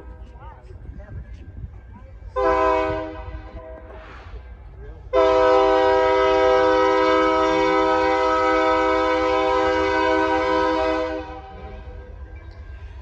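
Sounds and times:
locomotive air horn blast: 2.4 - 4.1, 5.1 - 12.0.

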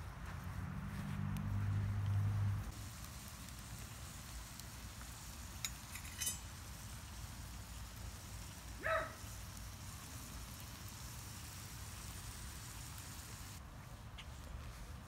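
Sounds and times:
faint fire crackles: 0.0 - 15.0
hiss of glowing coals: 2.6 - 15.0
dog yelp: 8.8 - 9.2.

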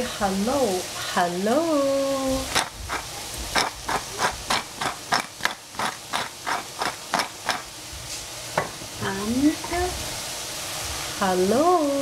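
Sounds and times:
vegetables sizzling in oil: 0.0 - 12.0
spatula clacking against frying pan: 2.5 - 7.7.

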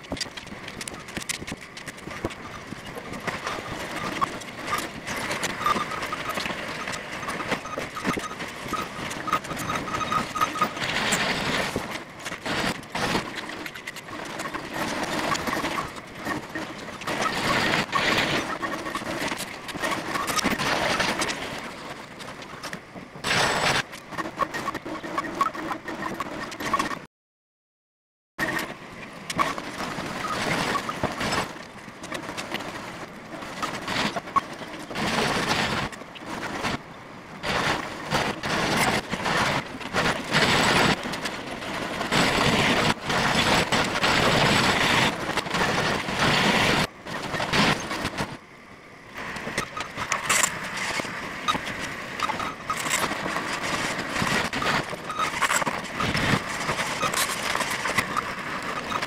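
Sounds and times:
construction machinery engines: 0.0 - 27.0.

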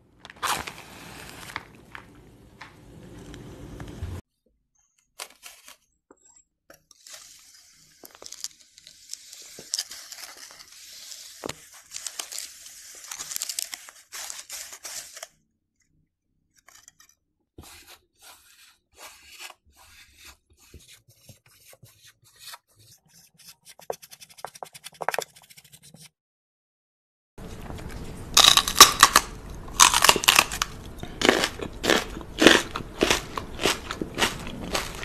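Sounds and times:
whisk crunching through sand: 0.3 - 2.1.

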